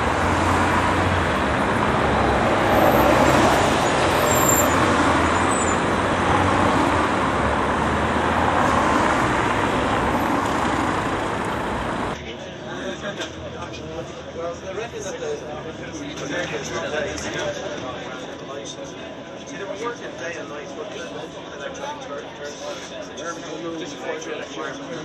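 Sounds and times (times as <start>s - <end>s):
road traffic passing: 0.0s - 17.4s.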